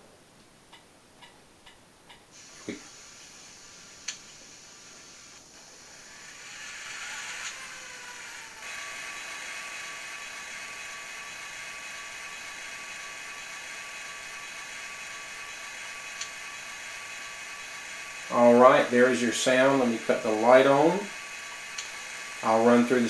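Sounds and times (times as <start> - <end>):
model locomotive diesel engine idling: 2.4 - 23.0
high whine: 4.0 - 23.0.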